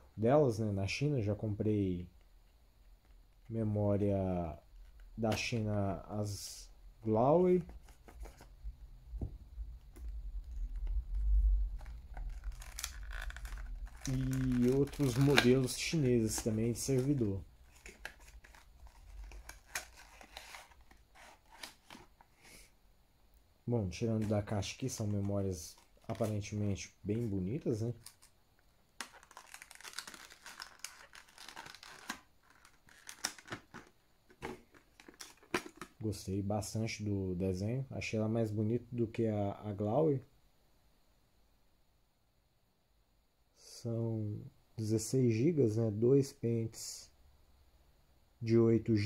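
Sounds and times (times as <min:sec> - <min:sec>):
papery tearing rustle: 0:10.6 - 0:22.2, 0:29.0 - 0:35.9.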